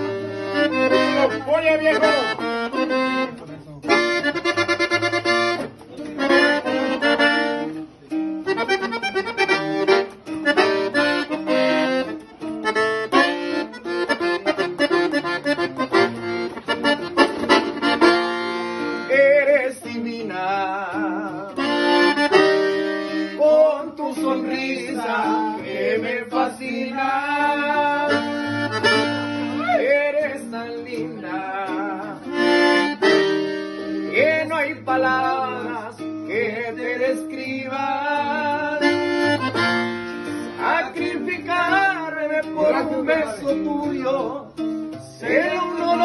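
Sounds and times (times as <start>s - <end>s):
button accordion playing fast: 0.0s - 7.8s, 8.5s - 19.1s, 21.6s - 23.5s, 28.0s - 29.6s, 32.3s - 34.4s, 38.7s - 41.4s
guitar strummed: 0.0s - 46.0s.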